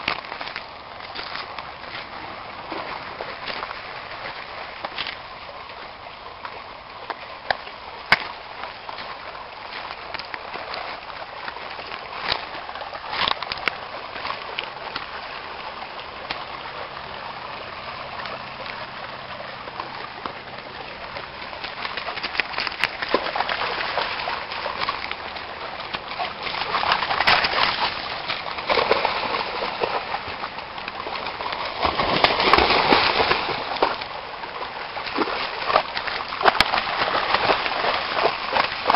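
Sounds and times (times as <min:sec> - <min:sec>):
creek running over rocks: 0:00.0 - 0:38.9
dog splashing through water: 0:18.2 - 0:38.9.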